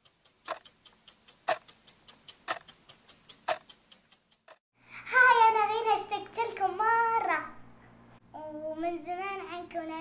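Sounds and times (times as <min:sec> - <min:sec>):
clock ticking: 0:00.0 - 0:04.6.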